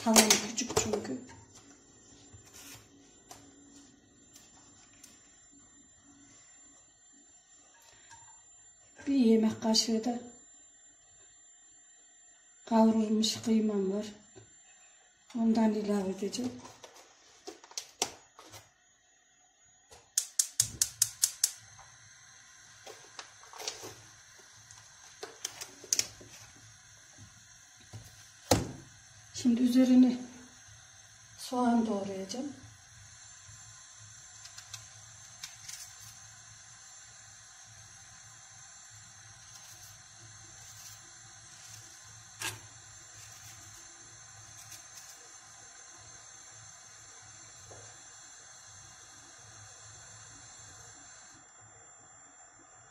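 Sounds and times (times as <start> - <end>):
gas stove igniter clicking: 0.0 - 1.1, 20.0 - 21.9, 24.4 - 26.2, 34.4 - 36.2
gas burner humming: 0.0 - 52.9
sharp click: 20.1 - 21.6
hot oil crackling: 30.7 - 51.0.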